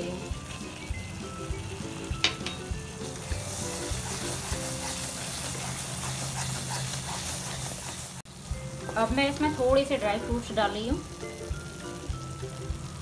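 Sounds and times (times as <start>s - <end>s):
food sizzling in a pan: 0.0s - 13.0s
wooden spatula scraping pan: 3.4s - 8.2s.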